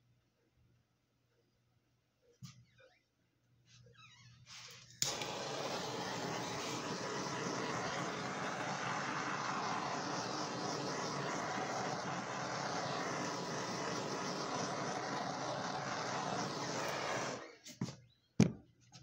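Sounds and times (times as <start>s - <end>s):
handheld blower whooshing: 5.0s - 17.7s.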